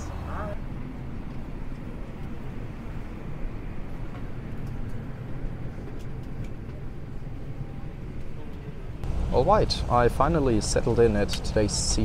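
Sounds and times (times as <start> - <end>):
aircraft cabin rumble and hiss: 0.0 - 12.0.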